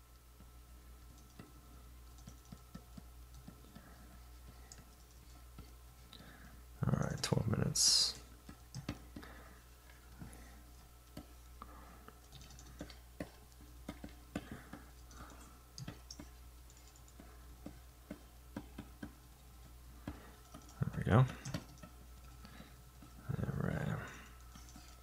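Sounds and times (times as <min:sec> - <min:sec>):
faint low hum: 0:00.0 - 0:25.0
computer keyboard clicks: 0:01.1 - 0:01.5, 0:02.1 - 0:03.9, 0:08.5 - 0:09.2, 0:12.2 - 0:19.2, 0:20.0 - 0:22.5.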